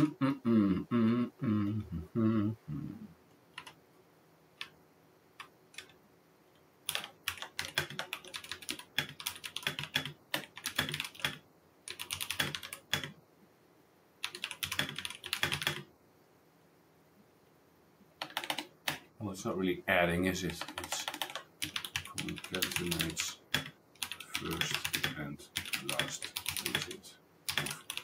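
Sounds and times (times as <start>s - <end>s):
keyboard typing: 3.5s - 3.8s, 5.4s - 6.0s, 6.9s - 13.2s, 14.2s - 15.9s, 18.2s - 19.0s, 20.4s - 28.0s.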